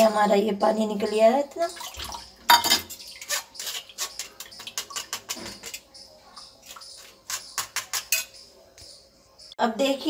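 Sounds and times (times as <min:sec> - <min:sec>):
metal spoon scraping mesh strainer: 0:02.9 - 0:05.9.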